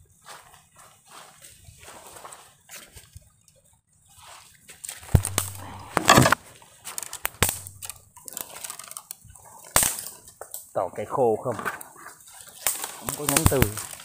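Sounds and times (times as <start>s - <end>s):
rustling against tree branches: 4.1s - 10.6s, 11.7s - 14.0s
camera knocking on tree trunk: 5.2s - 6.4s.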